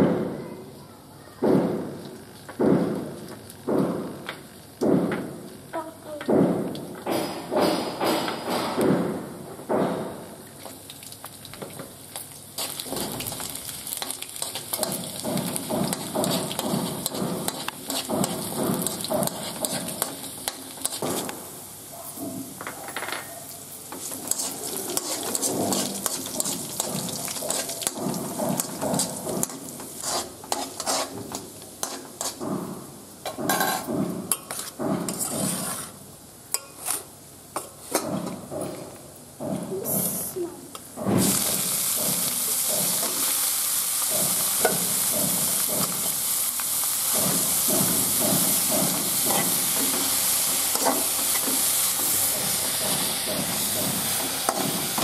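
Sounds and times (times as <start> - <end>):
oil sizzling in a pan: 9.0 - 37.3, 41.0 - 55.0
spatula scraping a pan: 14.0 - 21.3, 23.9 - 32.5, 33.5 - 36.0.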